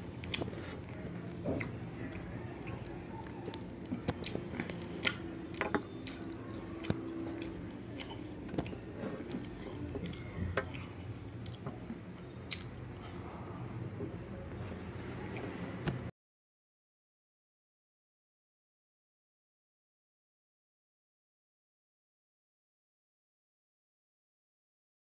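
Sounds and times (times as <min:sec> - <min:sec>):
chewing rice: 0:00.0 - 0:13.6.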